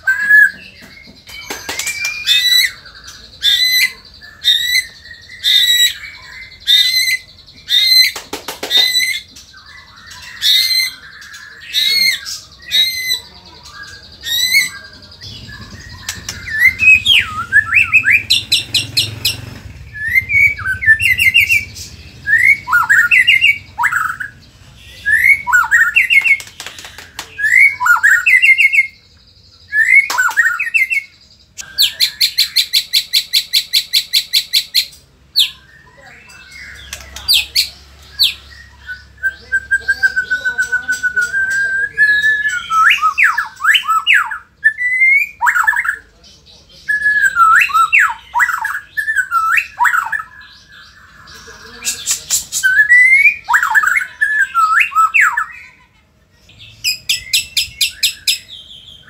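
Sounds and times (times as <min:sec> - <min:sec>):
bird whistled notes: 0:00.0 - 0:24.4
bird sharp calls: 0:00.0 - 0:59.0.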